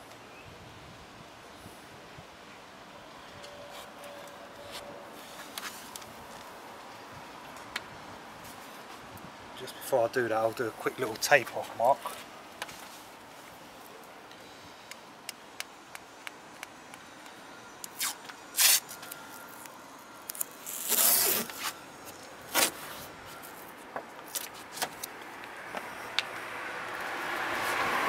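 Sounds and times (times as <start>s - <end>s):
tape ripping off roll: 17.9s - 19.1s, 20.3s - 21.8s, 22.5s - 23.0s.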